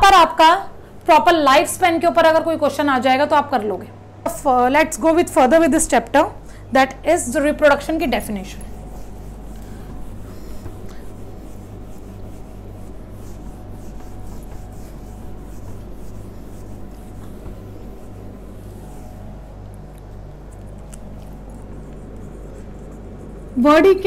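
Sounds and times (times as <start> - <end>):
steady low hum: 0.0 - 24.0
duster rubbing on whiteboard: 7.6 - 19.6, 21.3 - 24.0.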